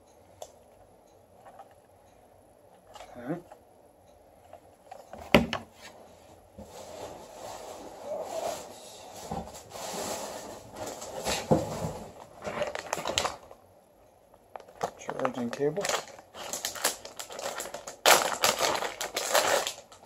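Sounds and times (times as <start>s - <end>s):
packaging rustling: 10.7s - 13.6s, 14.5s - 20.0s.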